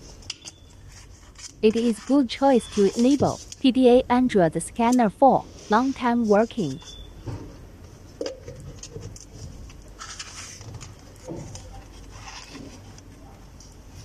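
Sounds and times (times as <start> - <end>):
cable handling noises: 8.0 - 13.8.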